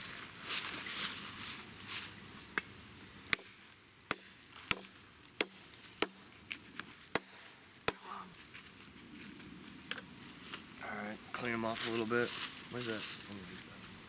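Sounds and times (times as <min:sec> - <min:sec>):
blade chopping on log: 0:03.3 - 0:06.2, 0:07.1 - 0:08.2.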